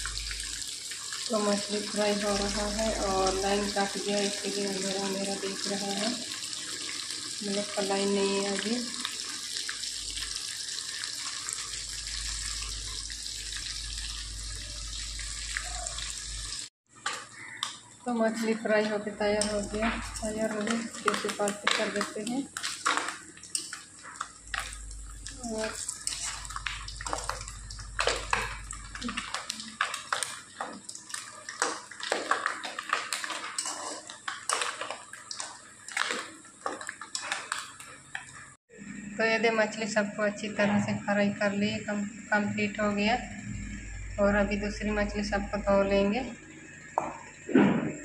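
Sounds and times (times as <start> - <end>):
fish sizzling in hot oil: 0.0 - 38.6
metal spatula scraping pan: 31.6 - 36.1.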